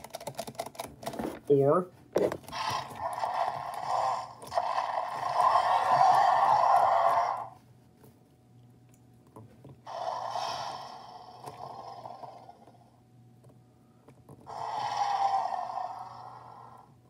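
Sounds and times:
electronic dinosaur roar: 0:02.5 - 0:07.6, 0:09.9 - 0:13.0, 0:14.5 - 0:17.0.

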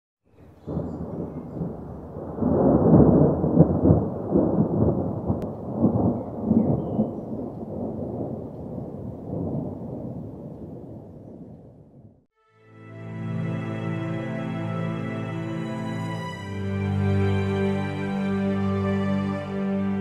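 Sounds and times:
thunder cracks: 0:00.4 - 0:12.2
thunder rumbling: 0:00.4 - 0:12.3.

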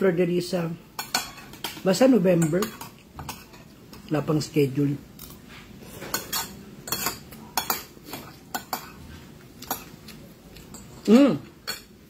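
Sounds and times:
cutlery clinking against a plate: 0:01.0 - 0:03.7, 0:05.2 - 0:09.0, 0:09.6 - 0:12.0.

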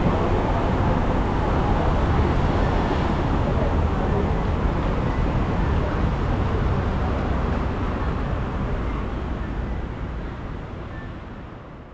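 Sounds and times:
city ambience: 0:00.0 - 0:11.9.

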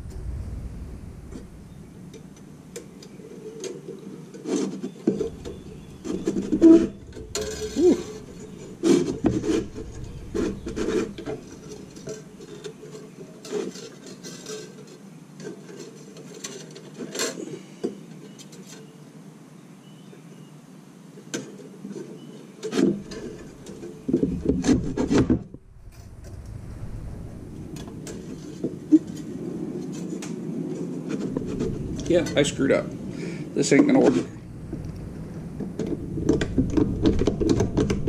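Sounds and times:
wire scraping and rubbing: 0:00.0 - 0:14.8, 0:22.7 - 0:38.0.

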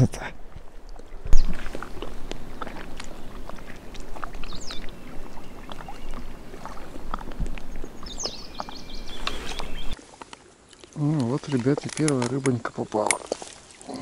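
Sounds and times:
light wind: 0:00.0 - 0:14.0
small waves lapping: 0:00.3 - 0:14.0
bird chirping: 0:01.2 - 0:10.0.

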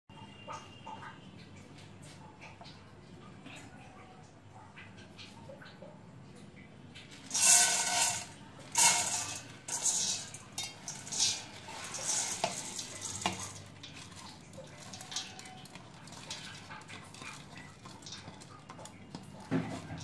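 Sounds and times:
grains pouring into metal pot: 0:07.2 - 0:18.5
hand sweeping grains off plate: 0:07.3 - 0:13.6.

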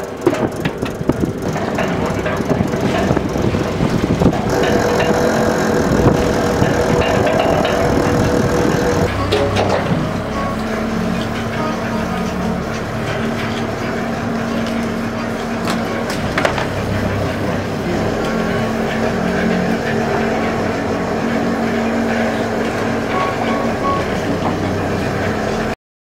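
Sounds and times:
boat engine and machinery drone: 0:00.0 - 0:25.8
sharp knocks: 0:00.2 - 0:09.8.

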